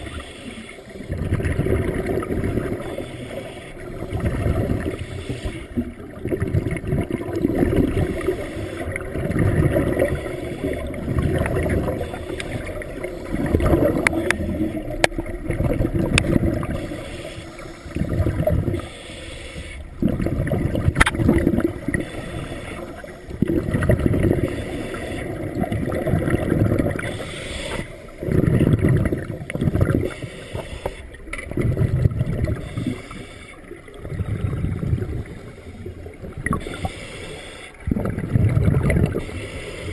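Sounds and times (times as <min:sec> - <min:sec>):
diver breathing through regulator: 0:00.0 - 0:01.2, 0:02.6 - 0:05.9, 0:07.9 - 0:14.9, 0:16.5 - 0:20.2, 0:21.6 - 0:25.6, 0:26.8 - 0:28.8, 0:29.6 - 0:31.3, 0:32.4 - 0:38.3, 0:39.0 - 0:39.9
bubbles rumbling: 0:01.0 - 0:03.0, 0:03.9 - 0:05.0, 0:05.8 - 0:17.0, 0:17.9 - 0:18.8, 0:19.9 - 0:22.1, 0:23.3 - 0:27.1, 0:28.1 - 0:30.1, 0:31.2 - 0:32.8, 0:33.7 - 0:36.8, 0:37.8 - 0:39.3.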